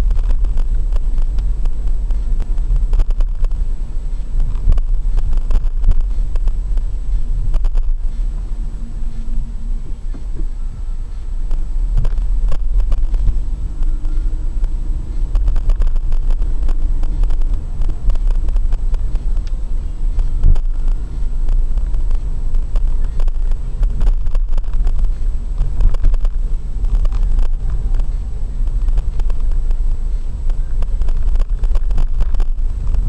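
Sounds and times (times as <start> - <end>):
engine and tyre rumble: 0.0 - 33.0.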